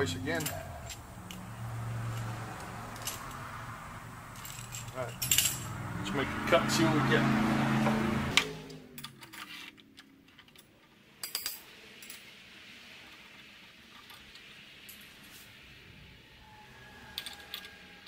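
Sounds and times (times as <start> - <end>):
metal tools clinking: 0.0 - 6.2, 17.1 - 18.0.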